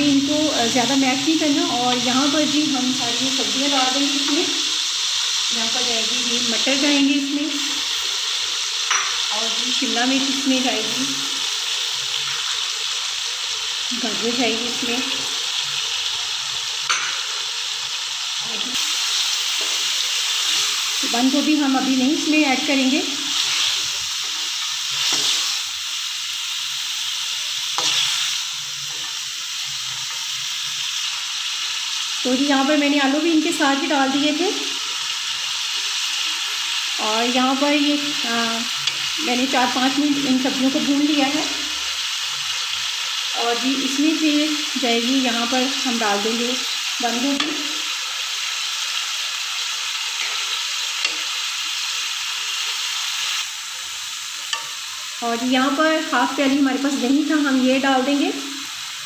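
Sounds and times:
vegetables sizzling in oil: 0.0 - 59.0
metal spatula stirring in pan: 23.3 - 25.6, 27.5 - 31.2, 54.4 - 55.1.

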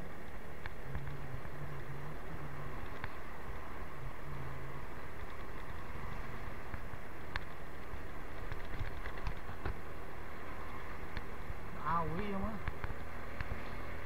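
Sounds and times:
motorcycle engine hum: 0.0 - 14.0
wind and road noise: 0.0 - 14.0.

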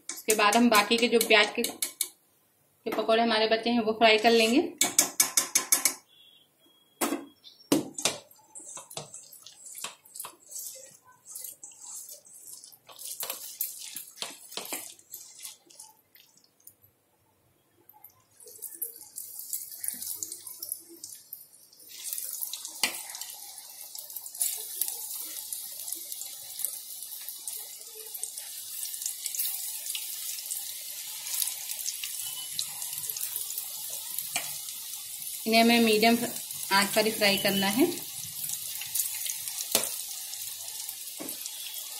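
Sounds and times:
batter sizzling in hot oil: 7.8 - 16.4, 18.4 - 41.9.

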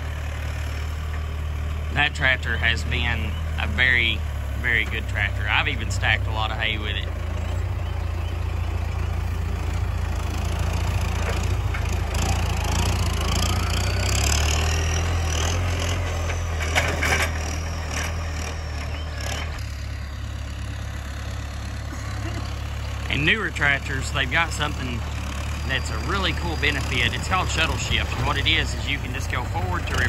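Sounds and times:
tractor diesel engine running: 0.0 - 30.0.

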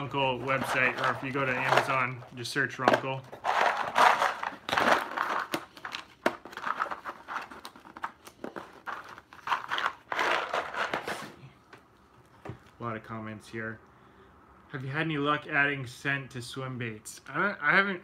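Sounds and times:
cardboard crinkling and rustling: 0.0 - 11.4.

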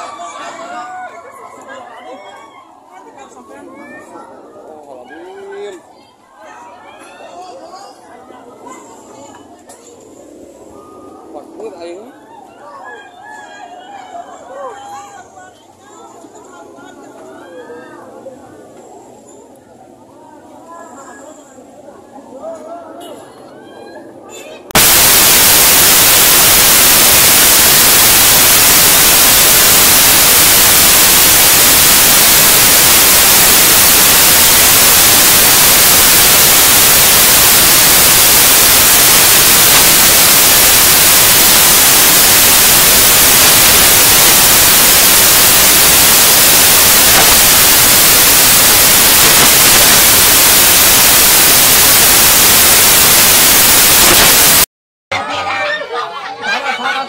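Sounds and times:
loud static hiss: 24.7 - 54.7.

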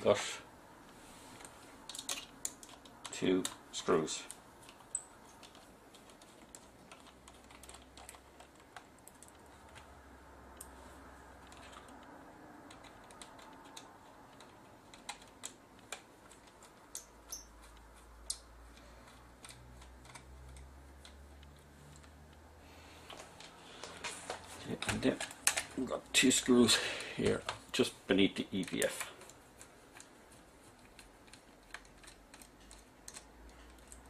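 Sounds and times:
small clicks and taps of parts: 1.4 - 9.9, 10.5 - 10.8, 11.4 - 22.4, 23.1 - 25.8, 28.6 - 34.0.

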